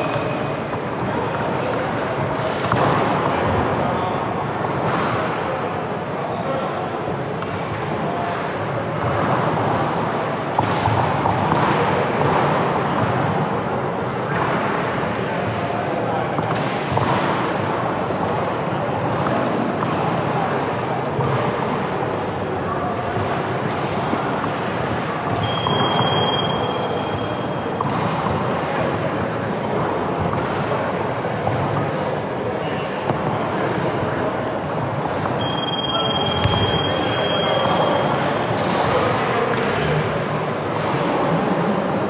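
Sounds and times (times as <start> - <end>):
basketball game din in hall: 0.0 - 42.0
hubbub of crowd and players: 0.0 - 42.0
ball bounce knock: 36.4 - 36.8.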